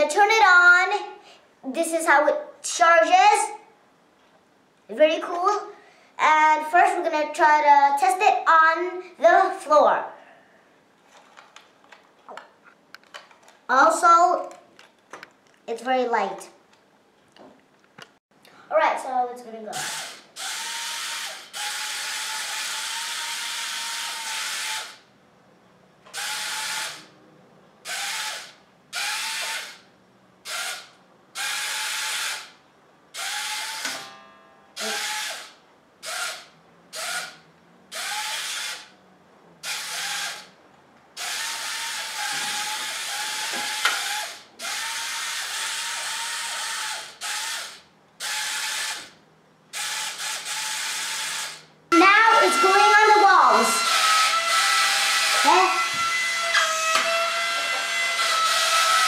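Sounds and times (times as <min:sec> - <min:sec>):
toy electric motors whirring: 0:19.7 - 0:25.0, 0:26.1 - 0:27.1, 0:27.8 - 0:29.8, 0:30.4 - 0:32.6, 0:33.2 - 0:34.0, 0:34.8 - 0:38.9, 0:39.6 - 0:40.5, 0:41.2 - 0:59.0.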